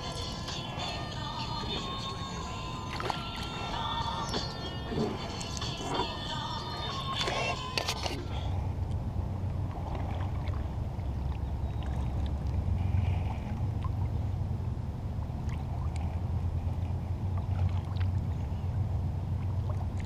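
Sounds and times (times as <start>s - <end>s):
paddle blades dipping: 0.0s - 20.0s
steady low rumble: 0.0s - 20.0s
water moving along hull: 0.0s - 20.0s.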